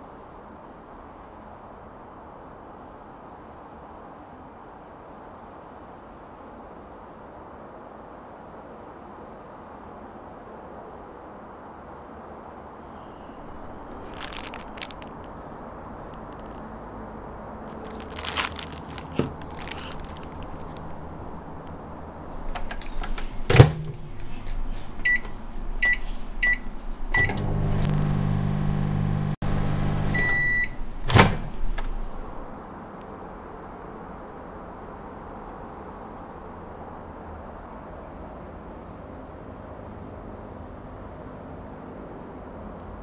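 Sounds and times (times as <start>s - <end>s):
light handling clicks: 18.9s - 23.6s
microwave humming: 20.4s - 32.5s
door latch popping open: 21.6s - 24.7s, 30.8s - 32.5s
microwave door clacking shut: 22.5s - 25.4s, 29.9s - 32.4s
keypad beeps: 25.0s - 28.0s, 29.8s - 32.4s
long beep: 30.0s - 30.8s.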